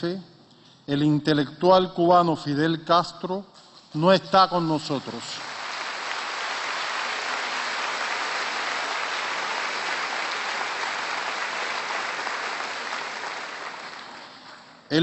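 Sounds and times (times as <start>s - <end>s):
audience applauding: 5.3s - 14.9s.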